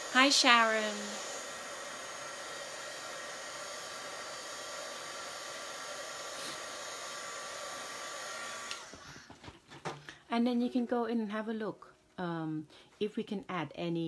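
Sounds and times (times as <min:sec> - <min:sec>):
hair dryer blowing: 0:00.0 - 0:09.4.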